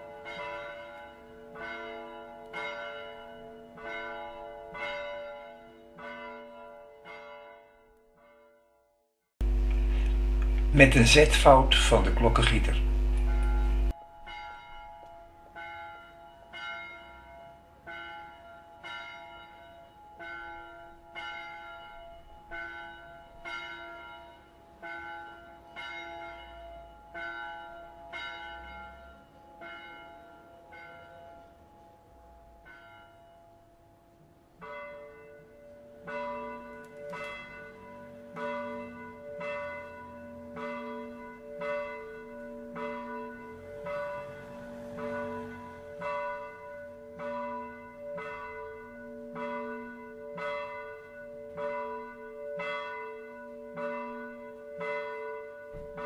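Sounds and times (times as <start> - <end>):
church bell striking: 0.0 - 8.8, 10.6 - 56.0
deeper-toned bell ringing: 10.7 - 33.7, 34.6 - 56.0.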